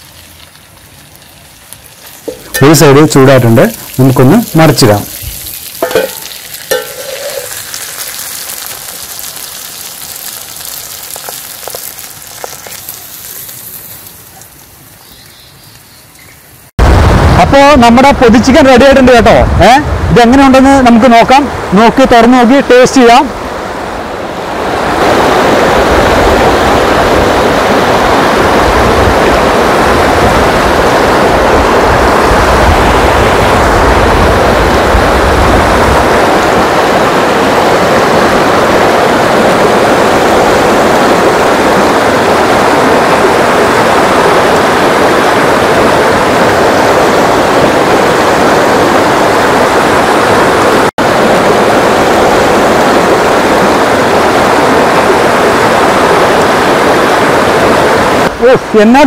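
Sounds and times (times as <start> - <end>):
river rapids rushing: 23.0 - 59.0.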